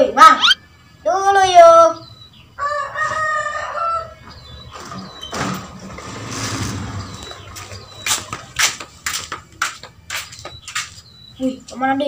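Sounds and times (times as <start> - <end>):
rooster crowing: 2.6 - 4.3.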